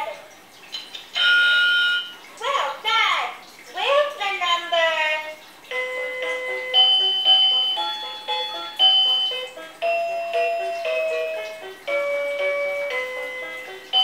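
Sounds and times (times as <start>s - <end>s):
tinny electronic toy melody: 1.1s - 2.2s, 5.7s - 14.0s.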